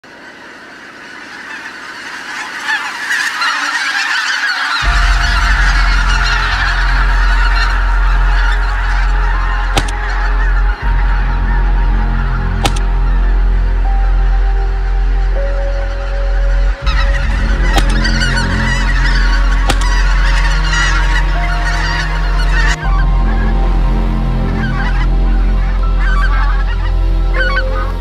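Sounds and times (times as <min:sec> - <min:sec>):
flock of geese honking: 0:00.0 - 0:28.0
steady low drone: 0:04.8 - 0:28.0
sharp clicks: 0:09.8 - 0:10.1, 0:12.6 - 0:12.9, 0:19.7 - 0:19.9.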